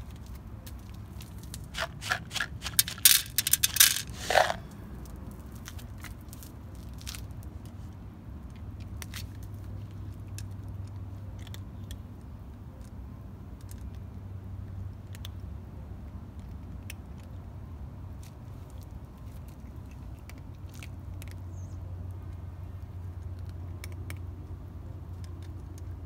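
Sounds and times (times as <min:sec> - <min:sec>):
cat crunching kibble: 0:00.0 - 0:14.1, 0:14.7 - 0:15.5, 0:18.2 - 0:26.0
kibble poured onto plastic lid: 0:01.5 - 0:04.6.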